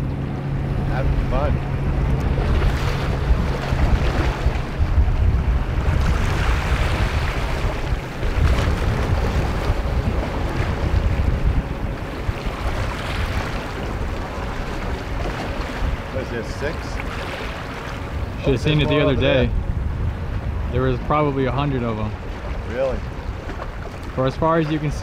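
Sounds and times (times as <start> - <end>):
choppy seawater washing: 0.0 - 25.0
wind buffeting microphone: 0.0 - 25.0.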